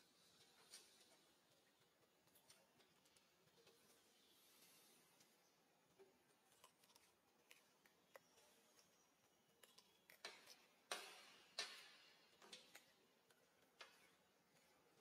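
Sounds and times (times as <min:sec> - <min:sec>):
monkey chewing crunchy food: 0:00.2 - 0:15.0.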